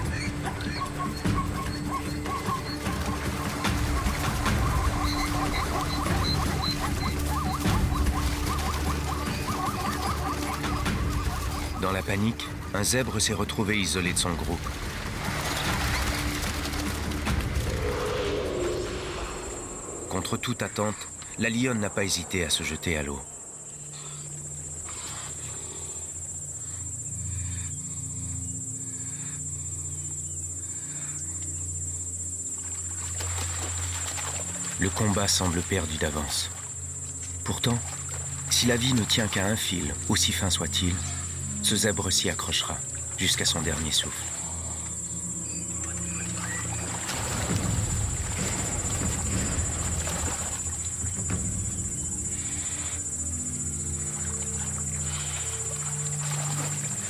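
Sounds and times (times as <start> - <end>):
animals struggling in water: 0.0 - 26.8, 32.5 - 57.0
insects chirring: 0.0 - 57.0
low sustained music notes: 0.0 - 57.0.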